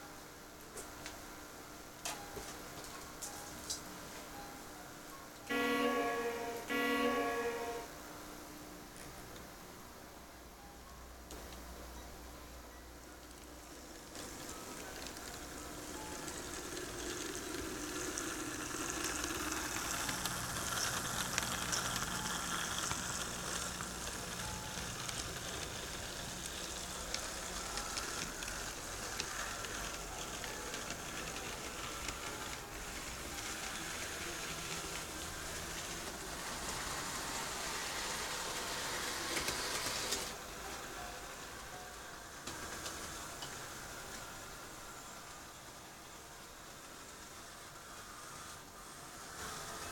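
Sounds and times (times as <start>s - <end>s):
wheels clicking on rails: 13.2s - 49.9s
model train motor whirring: 13.9s - 40.4s, 46.6s - 49.9s.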